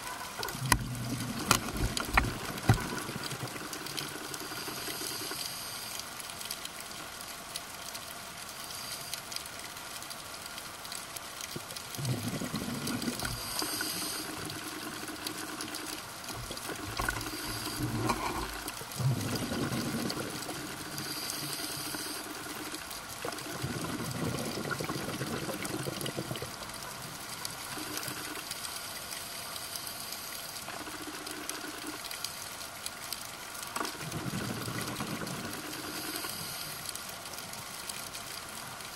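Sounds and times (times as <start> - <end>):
exhaled bubbles gurgling: 0.0 - 5.4, 11.6 - 28.4, 33.8 - 36.6
steady underwater hiss: 0.0 - 38.9
regulator inhale hissing: 13.2 - 14.6, 17.0 - 18.5, 19.9 - 22.8.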